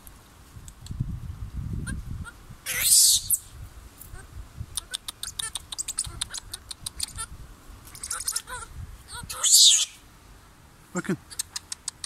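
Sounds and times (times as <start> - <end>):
monkeys squeaking and chirping: 2.7 - 3.5, 4.8 - 7.3, 7.9 - 10.0, 11.3 - 12.0.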